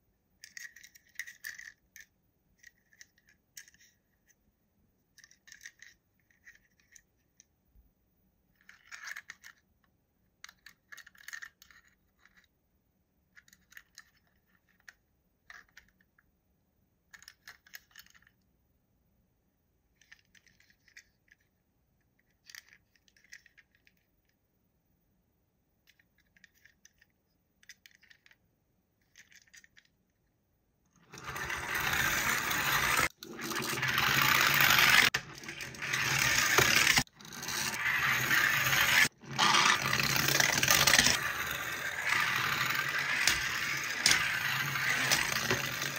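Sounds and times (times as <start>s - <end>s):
toy packaging clicking and scraping: 0.4s - 4.4s, 5.1s - 7.5s, 8.6s - 9.7s, 10.4s - 12.6s, 19.9s - 24.3s, 25.8s - 30.2s, 31.0s - 45.9s.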